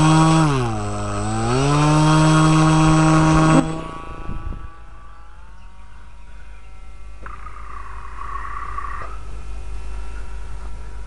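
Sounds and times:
rc plane motor buzzing: 0:00.0 - 0:06.1.

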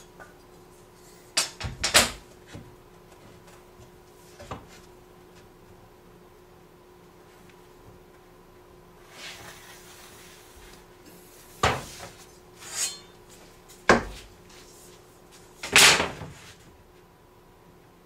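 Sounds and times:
straightedge scraping: 0:11.9 - 0:13.4.

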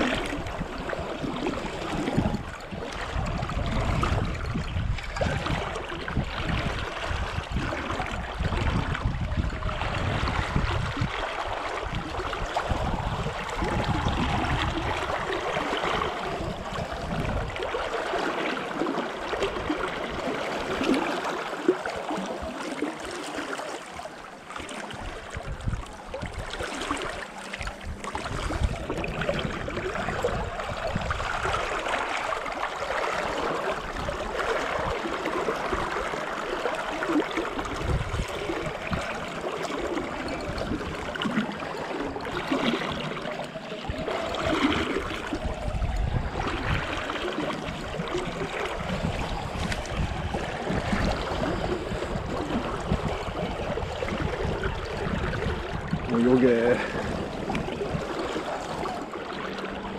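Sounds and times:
river water rushing and gurgling: 0:00.0 - 0:59.9.

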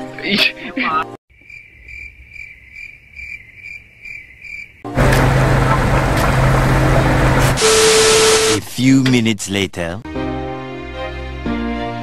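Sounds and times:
cricket chirping: 0:01.3 - 0:04.9.

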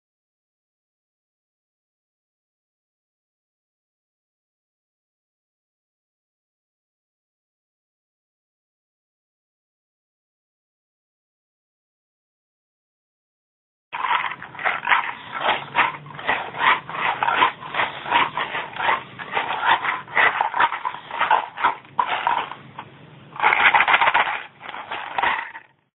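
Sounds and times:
maraca rattling: 0:14.0 - 0:25.7.

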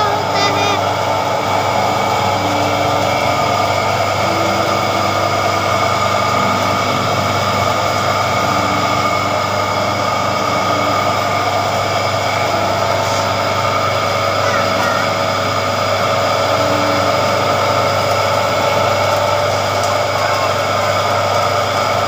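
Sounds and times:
juice extractor motor humming: 0:00.0 - 0:22.0.

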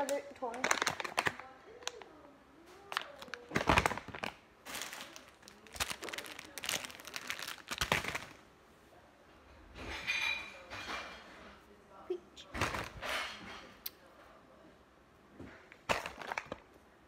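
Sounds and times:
plastic bags crinkling: 0:00.0 - 0:02.1, 0:02.8 - 0:08.4, 0:15.8 - 0:16.6.

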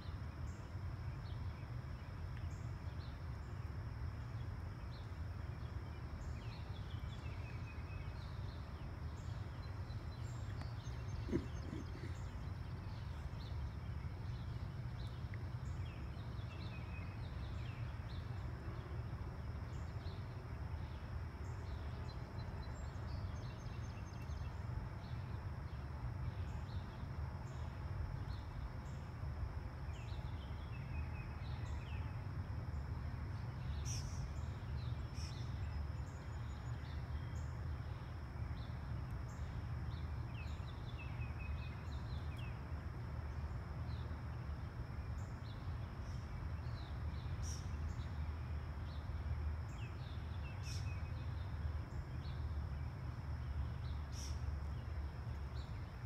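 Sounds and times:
small birds chirping: 0:06.2 - 0:17.8.

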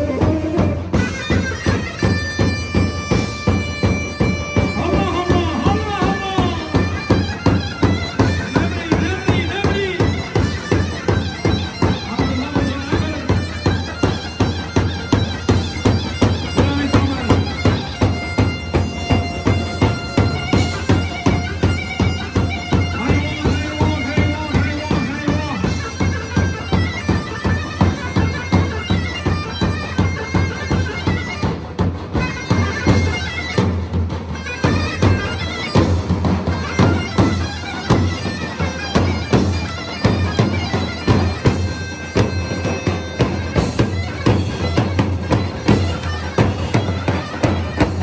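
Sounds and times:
davul drum beat: 0:00.0 - 0:48.0
shrill zurna folk tune: 0:00.0 - 0:48.0.

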